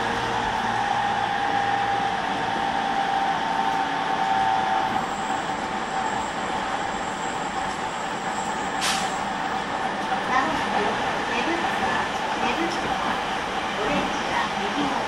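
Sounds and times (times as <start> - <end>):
train rolling noise: 0.0 - 15.0.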